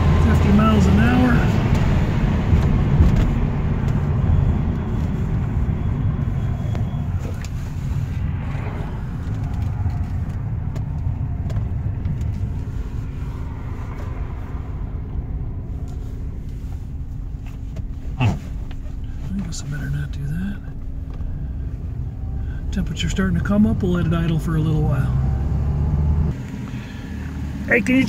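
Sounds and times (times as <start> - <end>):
wind noise: 0.0 - 16.4
car engine low rumble: 0.0 - 28.0.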